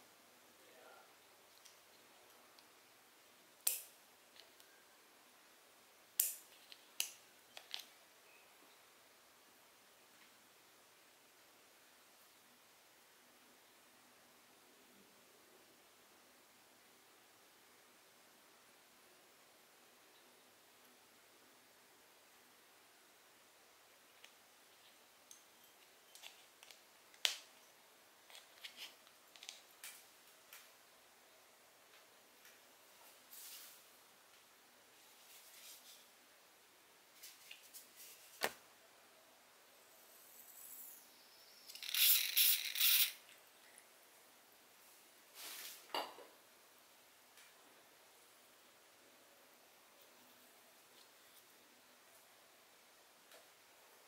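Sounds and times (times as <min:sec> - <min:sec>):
fishing reel parts clicking: 0:41.7 - 0:43.2.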